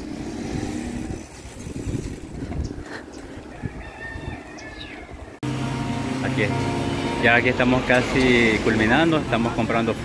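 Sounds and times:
wind buffeting microphone: 0.3 - 5.4.

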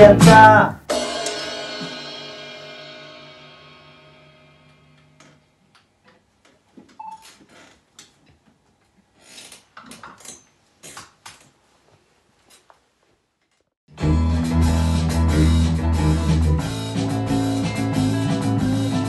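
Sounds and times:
electric guitar and bass chord: 13.9 - 19.0.

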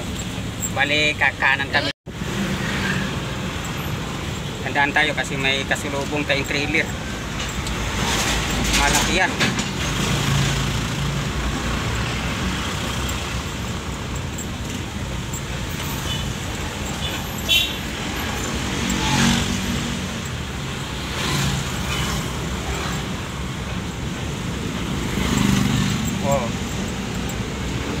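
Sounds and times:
road noise: 0.0 - 28.0
truck engine running: 5.5 - 19.1.

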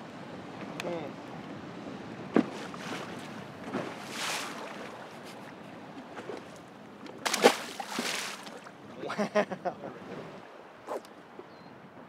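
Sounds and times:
wind: 0.0 - 12.0
water lapping against boat: 0.6 - 12.0.

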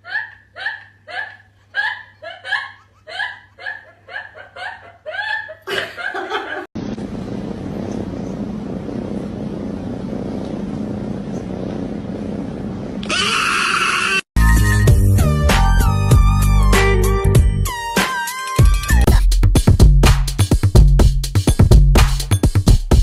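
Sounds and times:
steady hiss with low hum: 0.0 - 13.0.

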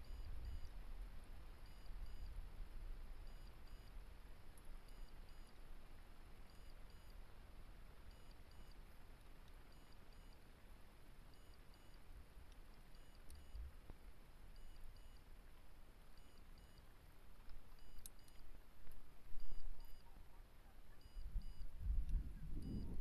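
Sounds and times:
faint electronic beeps: 0.0 - 0.8, 1.6 - 2.4, 3.2 - 4.0, 4.8 - 5.7, 6.4 - 7.3, 8.0 - 8.9, 9.5 - 10.5, 11.3 - 12.1, 12.7 - 13.8, 14.5 - 15.3, 16.1 - 17.0, 17.6 - 18.6, 19.3 - 23.0.

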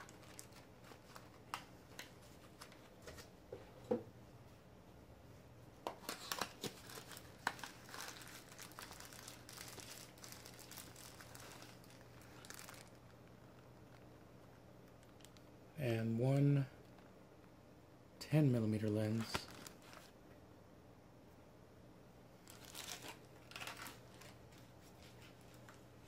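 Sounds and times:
plastic wrapping crinkling: 0.0 - 2.7, 6.0 - 15.5, 19.1 - 20.2, 22.4 - 25.8.

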